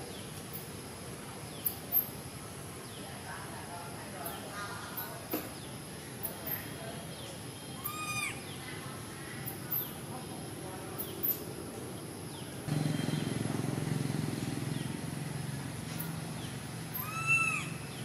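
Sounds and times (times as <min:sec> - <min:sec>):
baby monkey crying: 0:07.8 - 0:08.4, 0:16.9 - 0:17.8.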